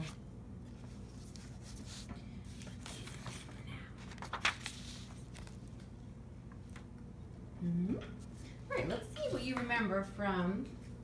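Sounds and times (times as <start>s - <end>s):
book pages rustling: 0.0s - 7.0s
low steady hum: 0.0s - 11.0s.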